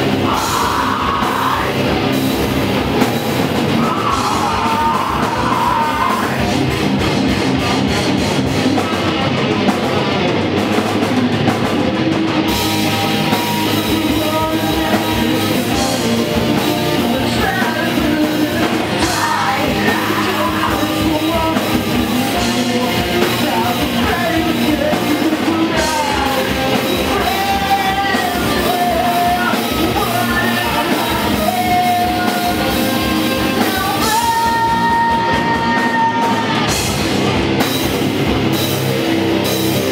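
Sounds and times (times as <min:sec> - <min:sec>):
live rock band: 0:00.0 - 0:39.9
person singing into microphone: 0:00.1 - 0:01.9, 0:03.7 - 0:06.6, 0:13.6 - 0:36.8.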